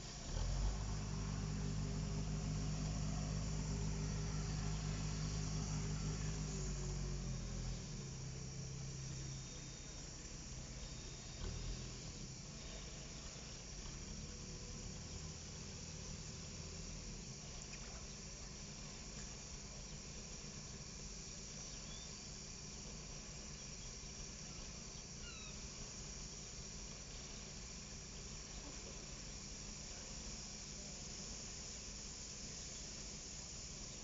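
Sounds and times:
distant diesel locomotive hum: 0.0 - 22.1
crickets chirring: 0.0 - 34.0.

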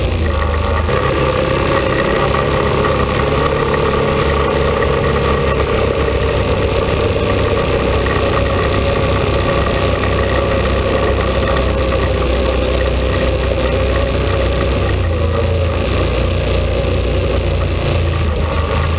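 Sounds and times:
atv engine running: 0.0 - 18.9.

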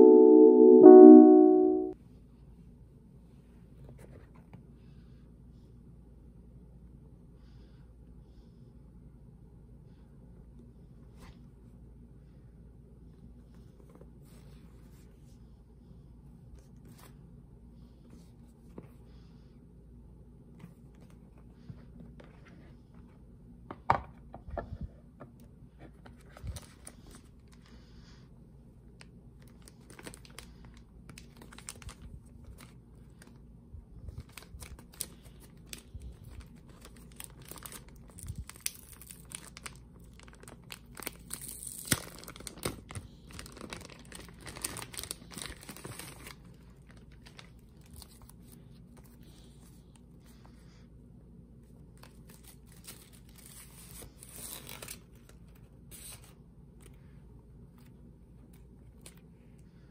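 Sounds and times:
plastic wrapping crinkling: 29.5 - 33.3, 34.2 - 48.4.

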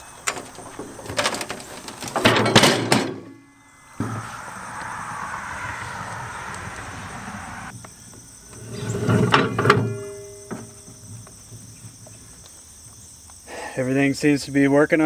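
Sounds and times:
metallic rattle and clunks: 0.0 - 4.4, 8.5 - 12.4
metal ringing: 0.2 - 6.5, 8.5 - 12.1.

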